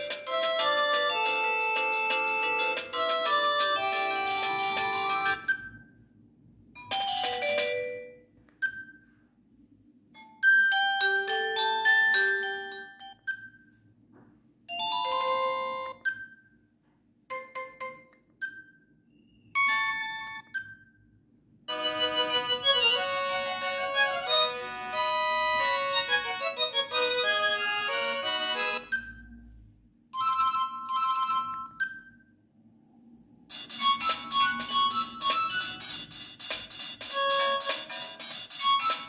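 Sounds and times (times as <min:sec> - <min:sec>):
keypad beep: 0:00.0 - 0:05.9, 0:08.5 - 0:09.2, 0:15.8 - 0:16.5, 0:17.3 - 0:20.9
phone ringtones playing: 0:00.0 - 0:05.9, 0:06.8 - 0:09.2, 0:10.2 - 0:13.8, 0:14.7 - 0:16.5, 0:21.7 - 0:29.4, 0:30.2 - 0:32.2, 0:33.5 - 0:39.0.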